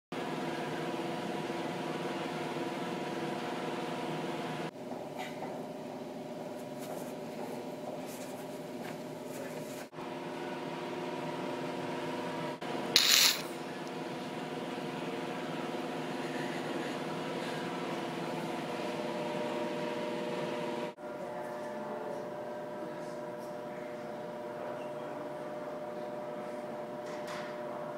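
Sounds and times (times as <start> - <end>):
short loud hissing burst: 13.0 - 13.4.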